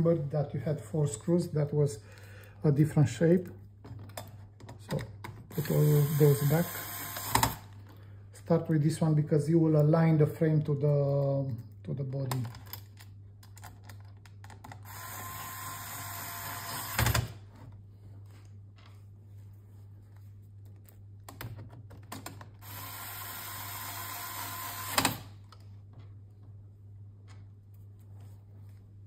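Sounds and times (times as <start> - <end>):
electric screwdriver running: 5.5 - 7.7, 14.8 - 17.2, 22.6 - 25.2.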